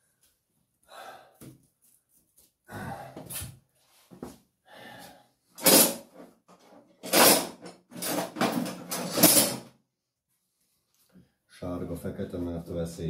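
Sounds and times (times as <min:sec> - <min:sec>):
objects scraping and clattering: 0:05.6 - 0:09.7.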